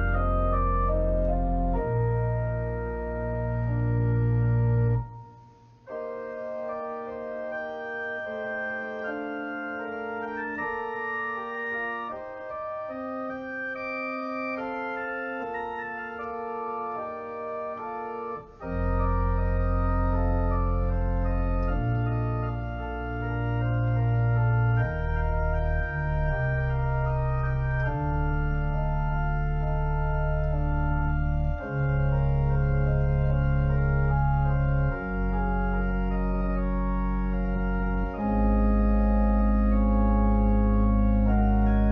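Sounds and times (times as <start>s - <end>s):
deep bass notes: 0.0s - 5.3s, 18.5s - 41.9s
organ playing sustained chords: 0.0s - 41.9s.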